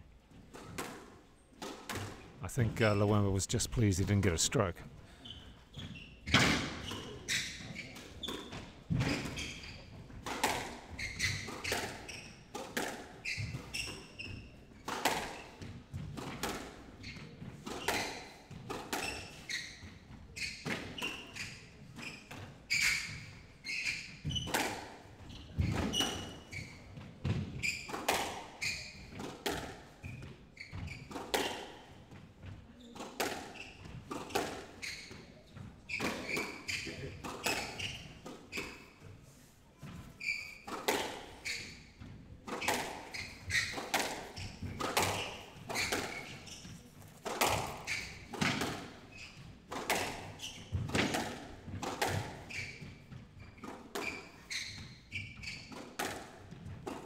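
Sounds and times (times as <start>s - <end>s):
shoes squeaking on wooden floor: 3.8s - 57.0s
squash ball cracking off rackets: 42.5s - 49.0s, 49.7s - 52.5s.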